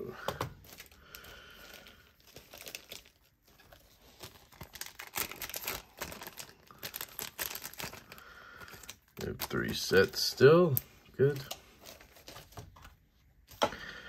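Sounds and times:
plastic bags crinkling: 0.2s - 13.6s.

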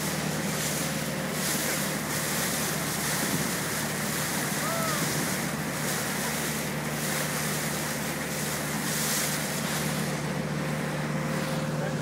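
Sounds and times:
speedboat engine running: 0.0s - 12.0s
water rushing from hull: 0.0s - 12.0s
wind on microphone: 3.0s - 5.6s.

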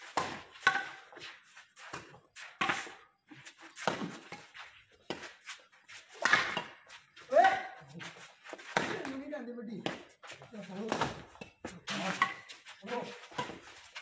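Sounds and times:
rackets hitting shuttlecock: 0.0s - 1.2s, 3.7s - 5.4s, 6.1s - 7.8s, 8.6s - 9.2s, 10.8s - 13.7s.

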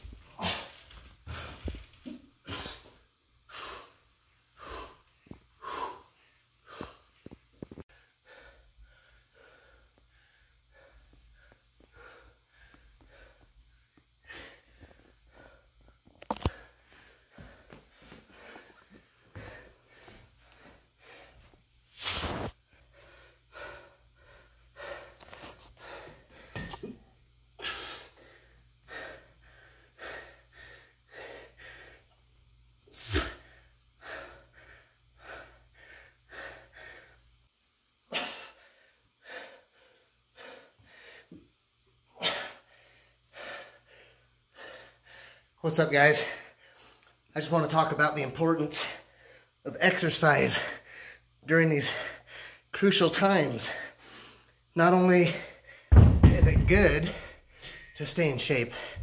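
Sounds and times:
man breathing hard: 4.6s - 21.6s, 22.2s - 27.0s, 27.6s - 32.2s, 32.9s - 37.4s, 38.0s - 45.6s, 50.5s - 52.7s, 53.6s - 59.0s.

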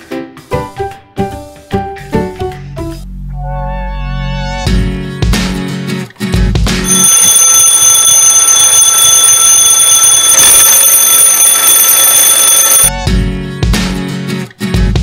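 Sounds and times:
alarm clock ringing: 6.8s - 12.9s.

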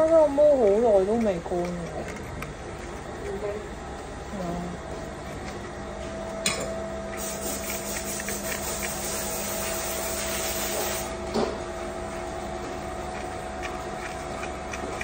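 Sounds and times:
machinery hum: 0.0s - 15.0s
loud air hiss: 7.2s - 11.2s.

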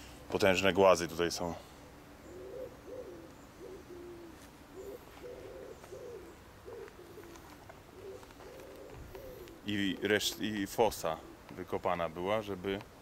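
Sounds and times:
pigeon cooing: 1.7s - 11.7s.

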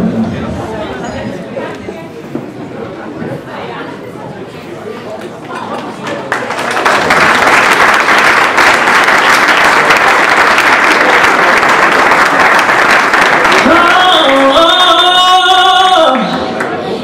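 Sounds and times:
audience applauding: 5.7s - 14.8s.

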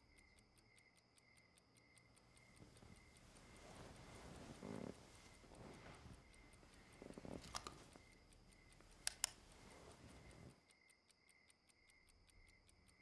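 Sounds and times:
fast even ticking: 0.0s - 13.0s
sharp clicks: 0.0s - 13.0s
soft rustle: 2.4s - 10.6s.

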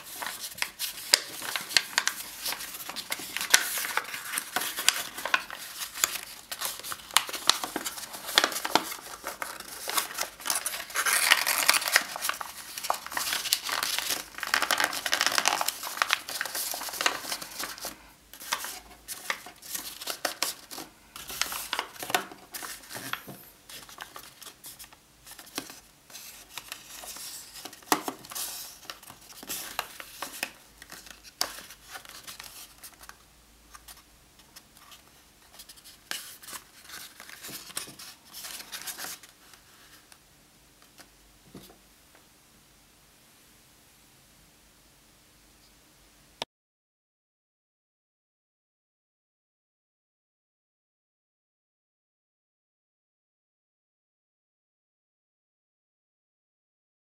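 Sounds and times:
paper rustling and crinkling: 0.0s - 40.1s.

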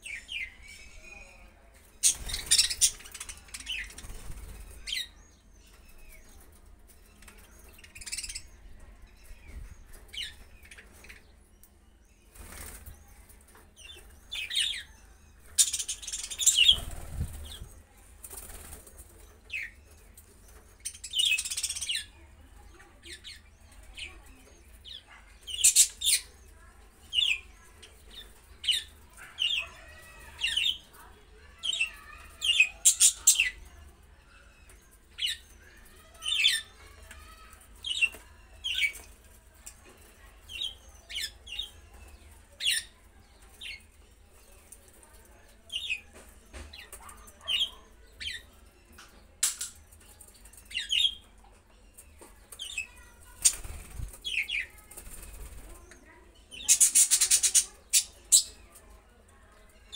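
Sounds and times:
wings flapping: 53.4s - 54.2s.

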